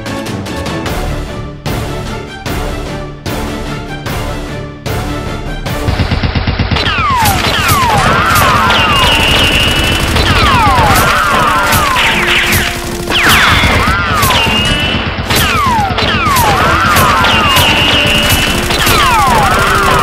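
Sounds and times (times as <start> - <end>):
background music: 0.0 - 20.0
rapid gunshots: 5.8 - 20.0.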